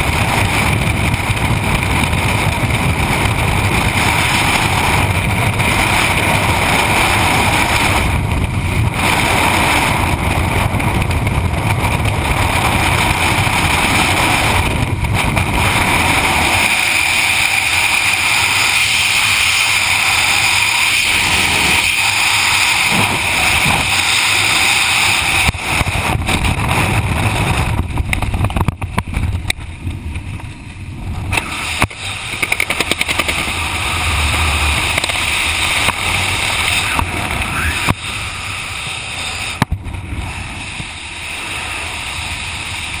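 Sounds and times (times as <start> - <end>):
wind rushing over microphone: 0.0 - 43.0.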